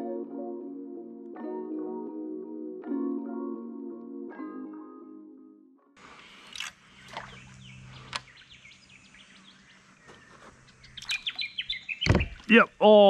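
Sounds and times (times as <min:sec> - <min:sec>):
river ambience: 0:06.0 - 0:13.0
small birds chirping: 0:06.0 - 0:13.0.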